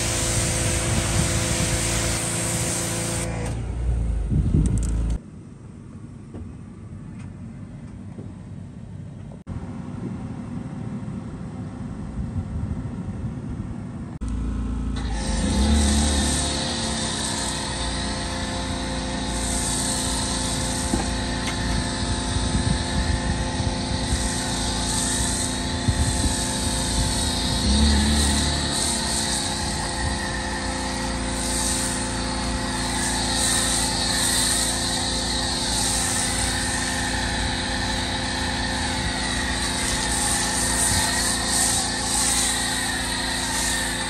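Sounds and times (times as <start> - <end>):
water spray hissing on car: 0.0 - 3.3, 15.2 - 44.0
pressure washer motor drone: 0.0 - 5.2, 14.2 - 44.0
low rumble: 3.3 - 5.2.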